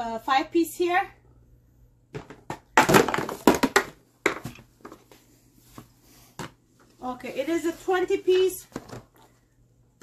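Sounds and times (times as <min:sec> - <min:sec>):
plastic containers clattering: 0:02.1 - 0:05.2, 0:08.6 - 0:09.4.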